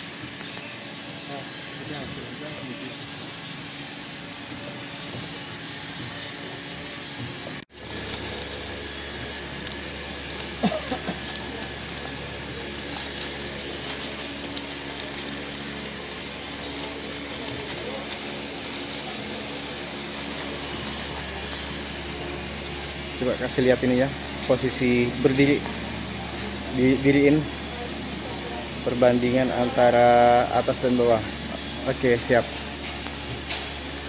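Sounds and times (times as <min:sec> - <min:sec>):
wrapping machine blower running: 0:00.0 - 0:34.0
shrink film crinkling: 0:07.7 - 0:33.8.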